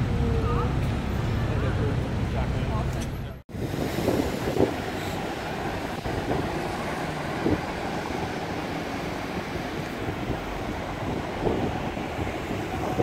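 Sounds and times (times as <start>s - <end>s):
passing cars rumble: 0.0s - 13.0s
wind buffeting microphone: 3.5s - 13.0s.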